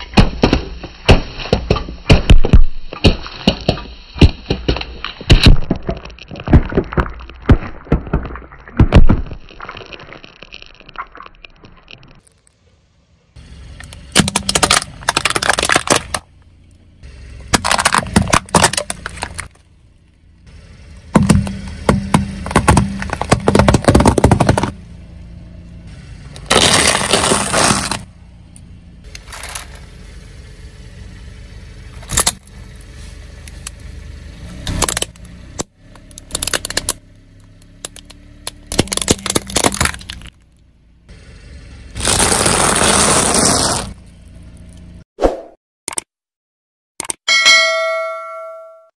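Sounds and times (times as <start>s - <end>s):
car tyre crushing objects: 0.0s - 12.7s, 13.4s - 45.0s
low engine hum: 12.4s - 45.0s.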